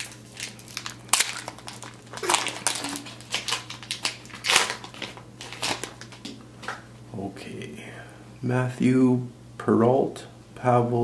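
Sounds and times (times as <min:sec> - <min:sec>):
foil wrapper crinkling and tearing: 0:00.0 - 0:06.3.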